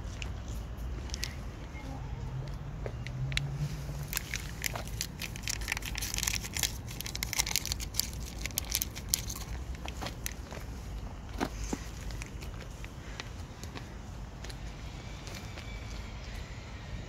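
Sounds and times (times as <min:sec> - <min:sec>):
cats chewing food: 0:02.9 - 0:16.5.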